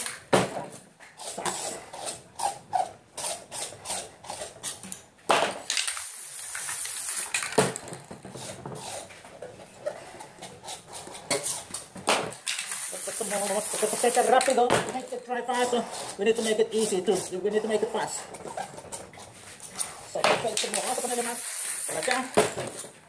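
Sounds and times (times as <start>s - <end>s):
spray can hissing: 5.7s - 7.6s, 12.5s - 14.6s, 20.6s - 22.8s.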